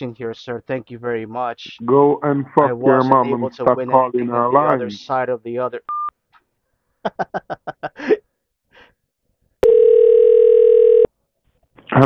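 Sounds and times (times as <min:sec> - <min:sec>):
buzzy telephone ringing tone: 0:09.6 - 0:11.1.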